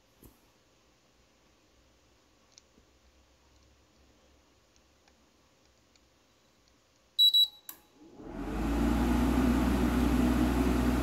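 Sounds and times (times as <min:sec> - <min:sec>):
short beeps: 0:07.2 - 0:07.9
air conditioner compressor humming: 0:07.2 - 0:11.0.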